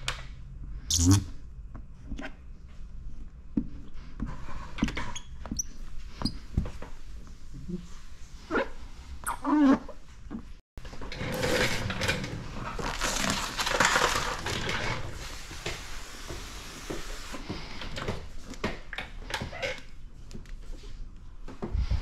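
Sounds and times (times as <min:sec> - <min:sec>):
plastic film crackling and rubbing: 0:12.5 - 0:15.3
plastic film squeaks: 0:12.8 - 0:14.5.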